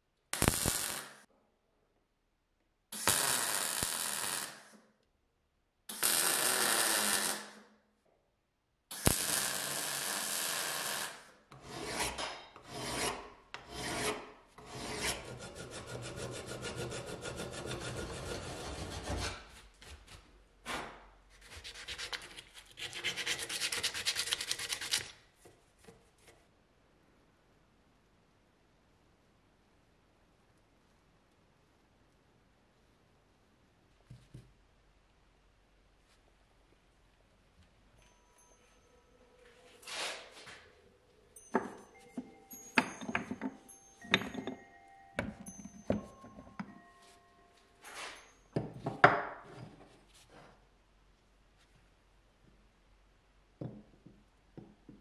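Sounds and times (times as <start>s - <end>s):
welder running: 0.4s - 1.2s, 3.0s - 4.6s, 5.9s - 7.5s, 9.0s - 11.2s
file rasping on metal: 11.6s - 19.4s.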